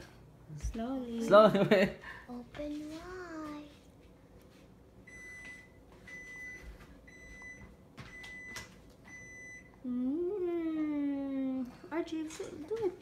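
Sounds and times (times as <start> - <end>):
appliance electronic beeps: 5.0 - 9.8.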